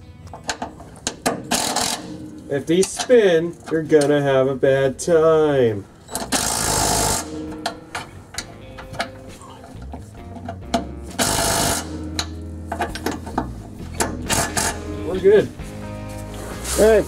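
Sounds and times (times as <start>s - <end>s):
impact driver hammering bolt: 0.4s - 2.2s, 6.2s - 9.2s, 10.4s - 14.9s.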